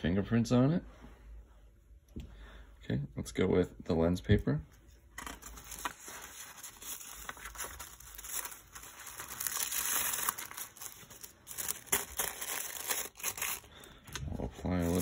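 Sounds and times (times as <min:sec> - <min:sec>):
tissue paper crinkling and rustling: 0:05.2 - 0:15.0.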